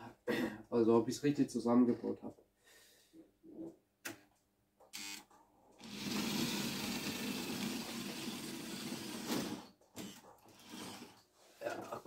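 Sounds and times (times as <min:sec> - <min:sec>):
model train whirring on metal track: 0:05.8 - 0:09.6.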